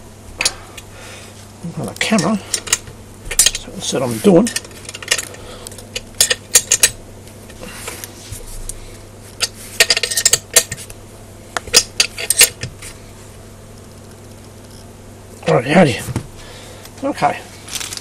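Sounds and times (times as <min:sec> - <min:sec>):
metal tool clinking on bolts: 0:06.2 - 0:07.0.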